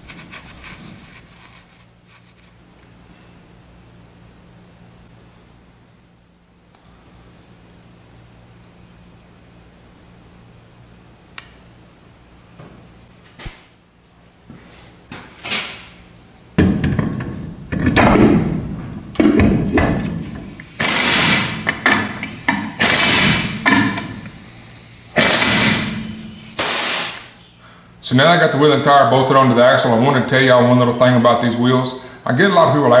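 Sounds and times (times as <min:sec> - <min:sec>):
air impact wrench bursts: 0:20.0 - 0:27.4.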